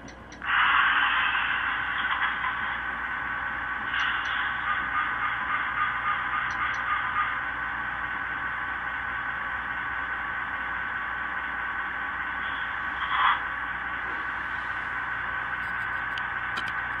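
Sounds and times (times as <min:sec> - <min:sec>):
thin hissy diesel idle from speaker: 0:00.4 - 0:02.7.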